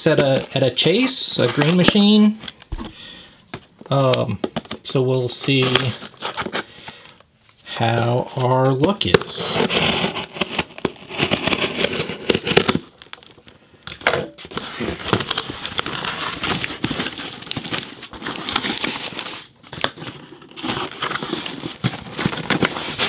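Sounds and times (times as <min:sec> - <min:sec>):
packing tape tearing: 0:09.3 - 0:13.4, 0:14.5 - 0:23.0
cardboard flaps scraping and crinkling: 0:14.4 - 0:23.0.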